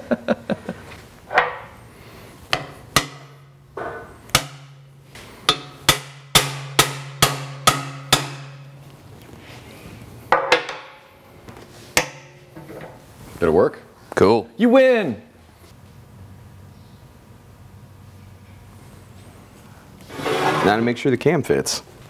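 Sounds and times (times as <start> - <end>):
hammer striking metal tool: 2.5 - 8.9, 12.0 - 12.5.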